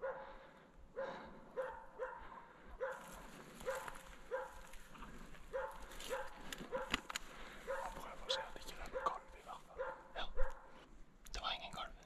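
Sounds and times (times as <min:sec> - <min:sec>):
dog barking: 0:00.0 - 0:10.8.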